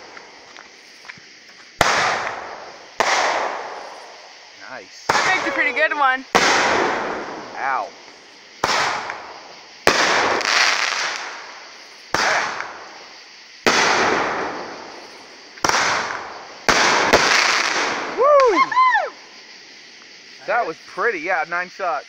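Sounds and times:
firework cake bangs: 1.8s - 4.2s, 5.0s - 7.9s, 8.6s - 13.0s, 13.6s - 18.6s.

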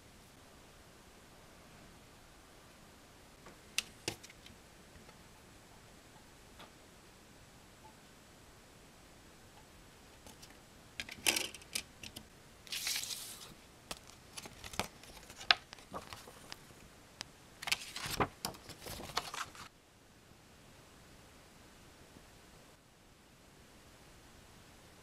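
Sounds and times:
paper rustling: 10.3s - 16.7s, 17.6s - 19.7s.

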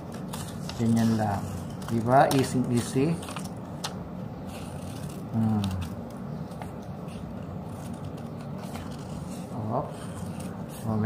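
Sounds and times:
scissors snipping paper: 0.1s - 6.0s.

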